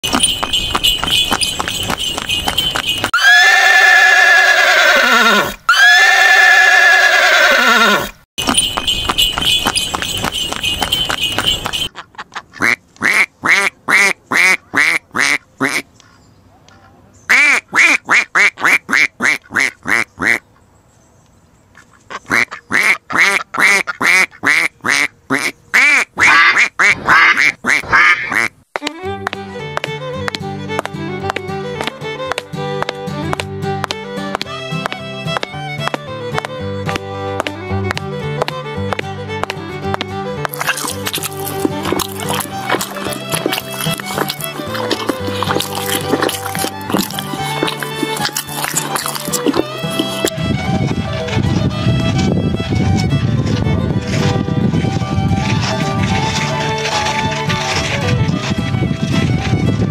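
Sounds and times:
hooves clip-clopping: 0:00.0 - 0:04.9, 0:08.4 - 0:11.9, 0:28.7 - 0:59.9
fiddle music: 0:00.0 - 0:11.9, 0:26.4 - 0:59.9
horse whinny: 0:03.2 - 0:08.2
duck quacking: 0:11.9 - 0:15.9, 0:17.3 - 0:20.4, 0:21.8 - 0:28.6.

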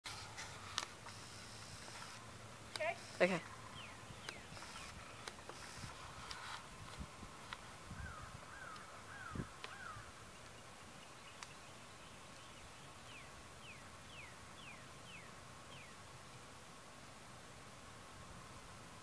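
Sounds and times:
faint steady hum: 0:00.1 - 0:19.0
birds calling: 0:00.4 - 0:06.4, 0:07.9 - 0:16.5.

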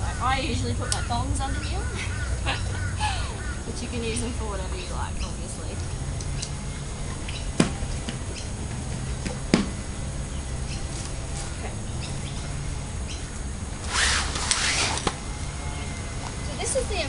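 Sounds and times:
rustling: 0:13.8 - 0:15.2.

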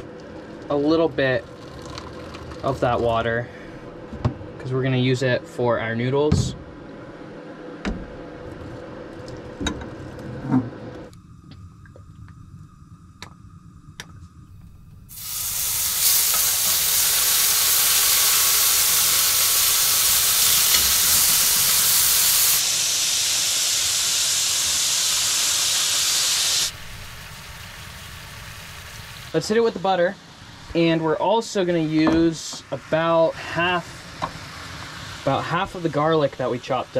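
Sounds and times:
steak sizzling in hot oil: 0:15.1 - 0:29.4.

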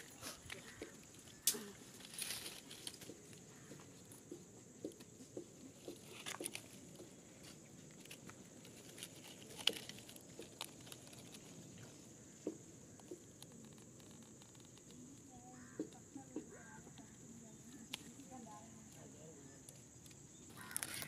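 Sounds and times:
twigs snapping: 0:00.0 - 0:03.7, 0:05.9 - 0:12.0, 0:20.0 - 0:21.0.

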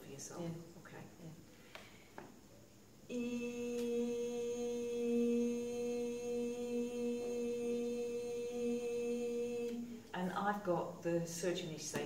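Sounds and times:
woman humming a long note: 0:03.1 - 0:09.9.

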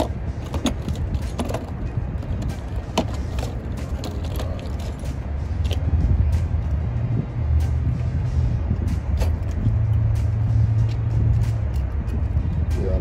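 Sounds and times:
tools clicking and knocking: 0:00.0 - 0:05.8
steady low rumble: 0:00.0 - 0:13.0.

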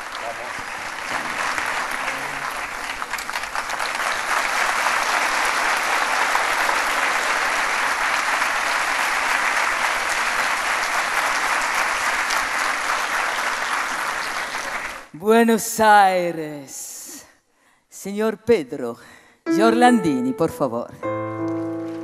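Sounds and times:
audience applauding: 0:00.0 - 0:15.1.

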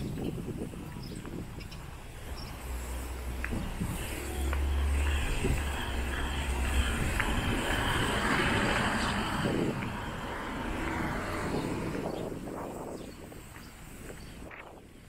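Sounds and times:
car driving past: 0:02.2 - 0:12.7.

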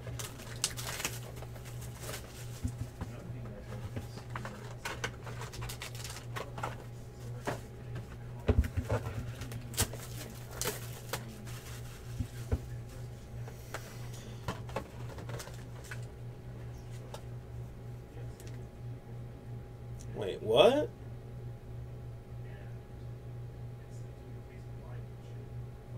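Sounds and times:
plastic wrap crinkling and tearing: 0:00.0 - 0:02.4, 0:04.3 - 0:06.6, 0:09.5 - 0:11.9
steady low hum: 0:00.0 - 0:25.9.

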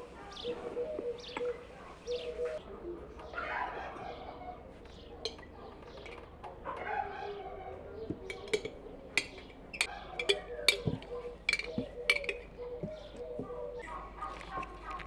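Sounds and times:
kitchenware clinking on a table: 0:08.1 - 0:13.0.

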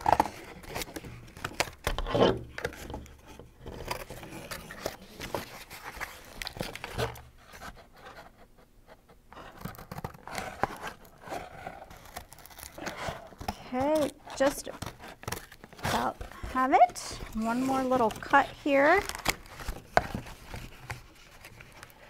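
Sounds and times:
scissors cutting cardboard: 0:00.0 - 0:22.0
cardboard sheet being handled: 0:10.4 - 0:22.0.

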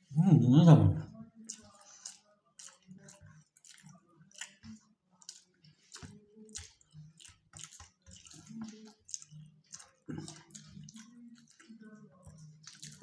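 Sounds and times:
chewing: 0:01.2 - 0:13.0
fingers squishing rice: 0:01.4 - 0:13.0.

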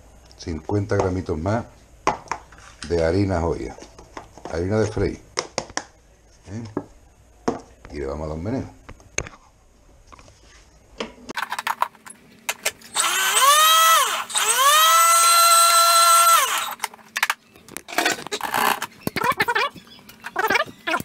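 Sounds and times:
kitchen mixer motor whining: 0:12.9 - 0:16.9.

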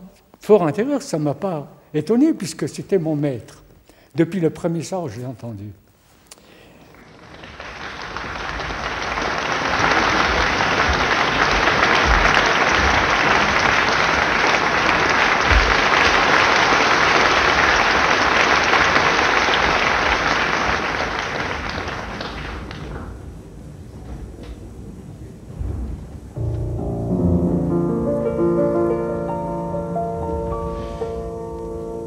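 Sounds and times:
audience applauding: 0:06.8 - 0:23.4.

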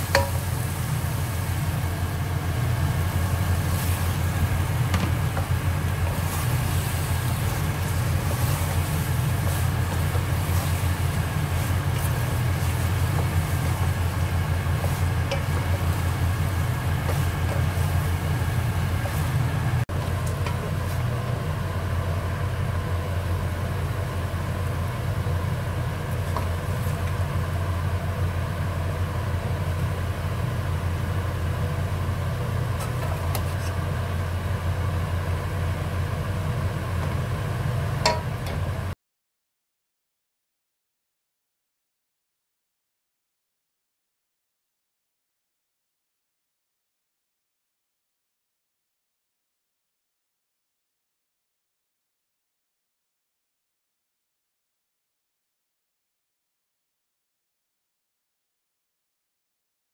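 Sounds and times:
low droning motor hum: 0:00.0 - 0:39.0
wooden spoon scraping a pot: 0:02.4 - 0:21.2, 0:32.6 - 0:33.9.

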